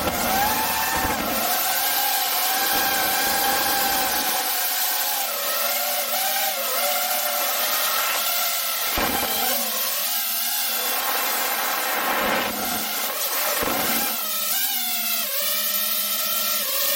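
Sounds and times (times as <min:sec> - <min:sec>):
drone propellers whining: 0:00.0 - 0:16.6.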